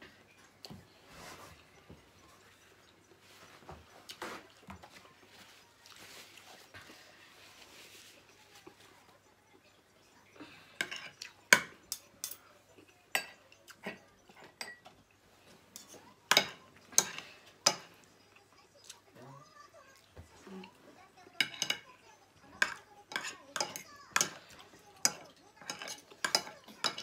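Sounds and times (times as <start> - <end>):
cutlery clinking on a plate: 10.8 - 18.0, 21.4 - 27.0.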